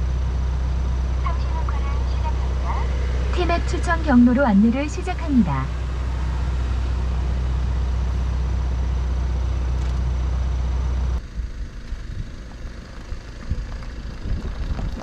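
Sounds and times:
engine idling inside cabin: 0.0s - 15.0s
wind buffeting on microphone: 13.1s - 15.0s.

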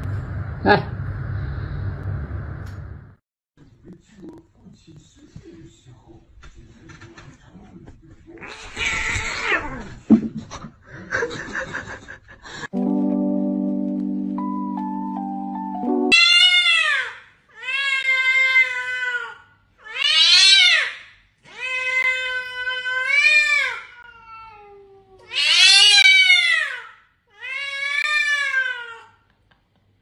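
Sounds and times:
cat meowing loudly: 8.4s - 9.9s, 16.1s - 29.2s.

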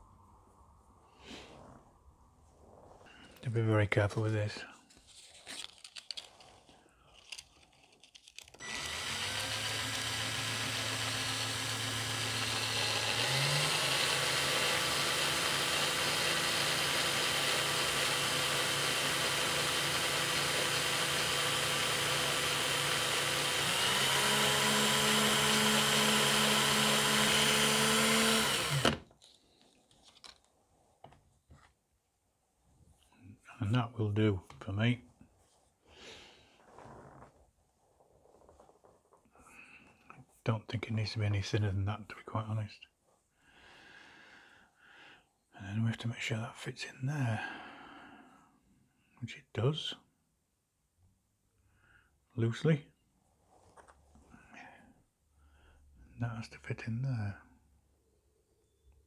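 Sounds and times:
cordless drill running: 8.6s - 29.1s.

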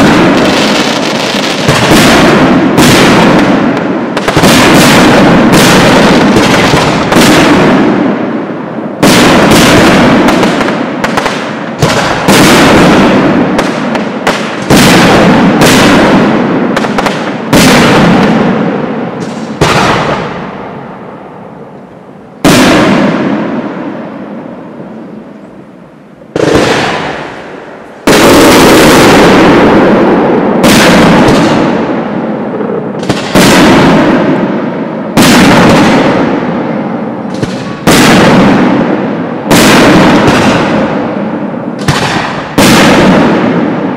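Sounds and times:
firework shells bursting with echo: 0.0s - 43.9s.

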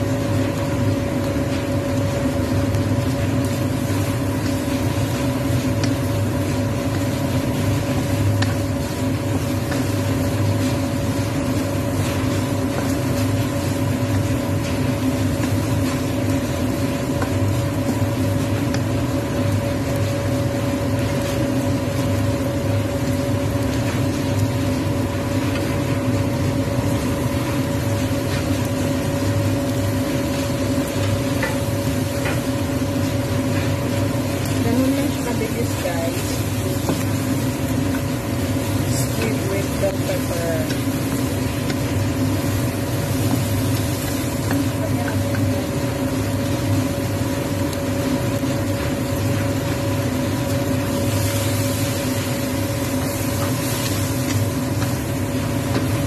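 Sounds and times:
squid sizzling in a wok: 0.0s - 56.0s
steady mechanical hum: 0.0s - 56.0s.

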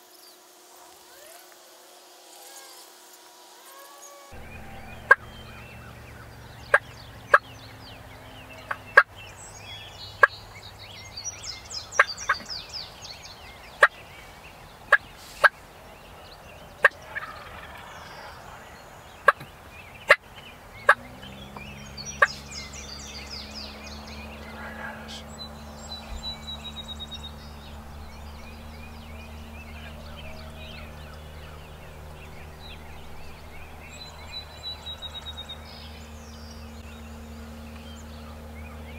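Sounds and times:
turkey clucking: 4.4s - 7.5s, 16.8s - 20.3s, 25.9s - 35.6s.

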